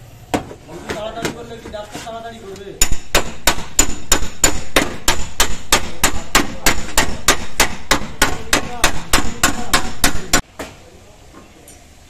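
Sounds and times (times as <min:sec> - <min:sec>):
hammer on sheet metal: 0:02.8 - 0:10.5.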